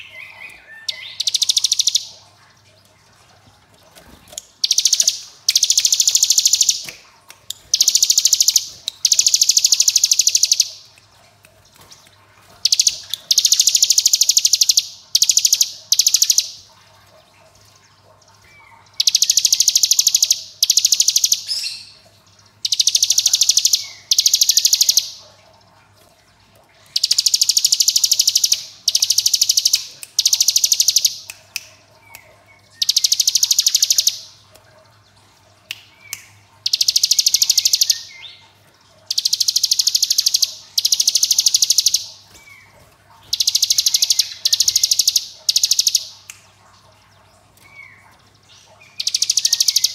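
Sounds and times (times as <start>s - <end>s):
bird rapid trilling song: 0.0s - 2.1s, 4.3s - 7.0s, 7.6s - 10.8s, 12.6s - 16.6s, 18.5s - 22.0s, 22.6s - 25.2s, 26.9s - 31.3s, 32.1s - 34.3s, 36.0s - 38.4s, 39.1s - 46.1s, 47.6s - 49.9s.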